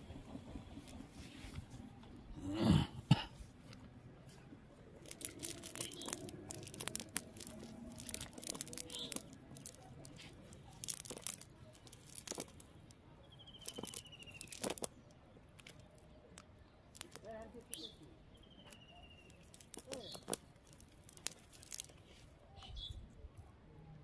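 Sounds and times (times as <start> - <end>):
wet net crackling and rustling: 4.3 - 12.8, 13.5 - 15.0, 16.9 - 17.9, 19.4 - 22.3.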